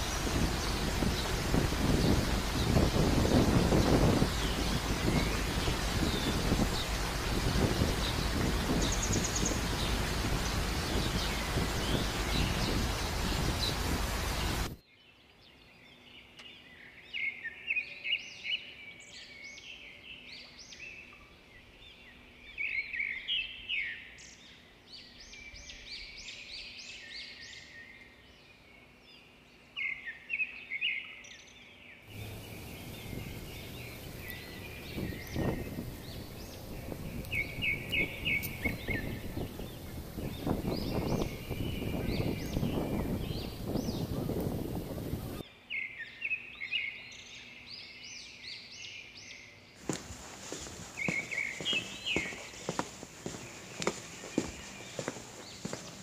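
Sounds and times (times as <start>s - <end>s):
wind on microphone: 0.0s - 14.8s, 32.1s - 45.4s
small birds chirping: 0.0s - 28.6s, 29.8s - 56.0s.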